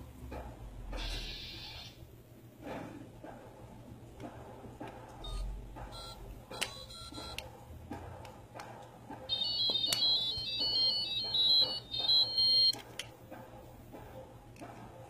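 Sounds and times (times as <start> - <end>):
toy phone beep melody: 6.0 - 7.4, 9.3 - 12.8.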